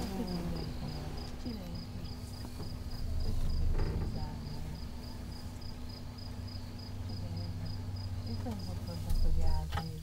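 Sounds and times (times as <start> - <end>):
insect chirping: 0.0 - 9.6
steady low hum: 0.0 - 10.0
low rustling thump: 2.1 - 5.8.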